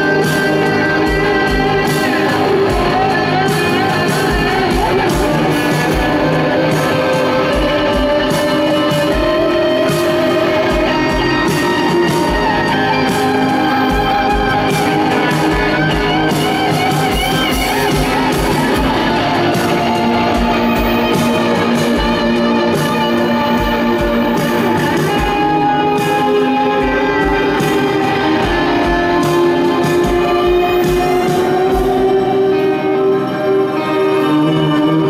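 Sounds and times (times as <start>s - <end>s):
drum kit: 0.0s - 35.0s
electric guitars: 0.0s - 35.0s
cello and violins: 14.5s - 25.7s, 26.4s - 35.0s.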